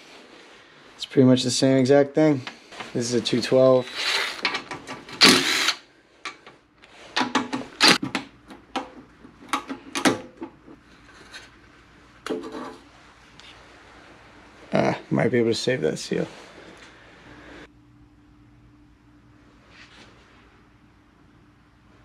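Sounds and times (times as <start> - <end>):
cordless driver whirring: 3.8 - 5.8, 7.8 - 8.0.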